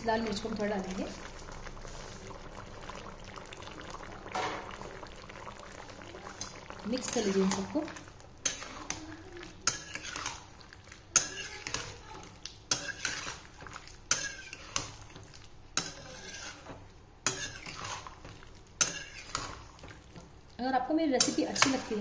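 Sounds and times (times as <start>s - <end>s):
thick curry being stirred: 4.6s - 20.6s, 21.2s - 22.0s
metal spatula scraping metal pan: 6.9s - 7.7s, 8.4s - 9.0s, 9.6s - 10.5s, 11.1s - 12.1s, 12.7s - 20.0s, 21.2s - 22.0s.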